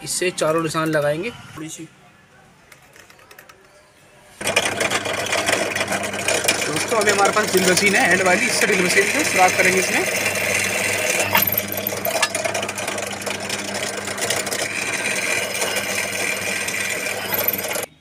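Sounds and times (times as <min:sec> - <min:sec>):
drill press motor humming: 0:04.4 - 0:17.9.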